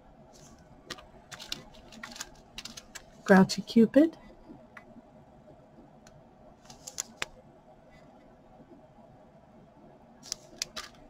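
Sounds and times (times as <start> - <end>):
plastic package crinkling: 0.9 - 3.2.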